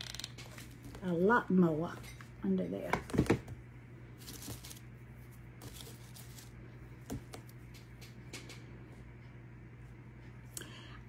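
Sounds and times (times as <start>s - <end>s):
steady low hum: 0.0s - 11.0s
paper and dried stems rustling: 4.2s - 6.7s.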